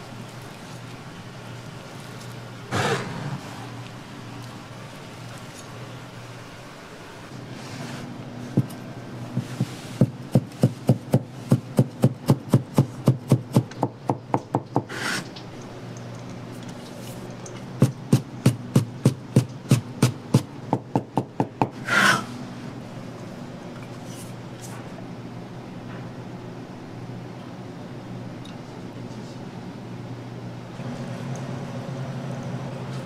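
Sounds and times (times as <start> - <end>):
knife chopping on wooden board: 9.4 - 15.0
knife scraping across board: 21.8 - 22.4.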